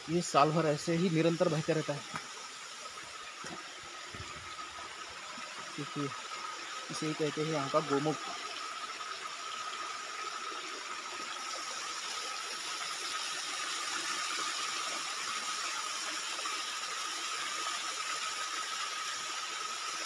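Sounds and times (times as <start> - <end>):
water pouring into a tank: 0.0 - 20.0
thin steady tone: 5.0 - 10.1.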